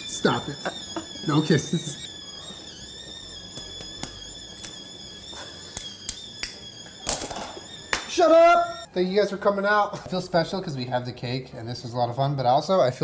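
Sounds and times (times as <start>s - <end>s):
faint high whine: 0.0s - 11.3s.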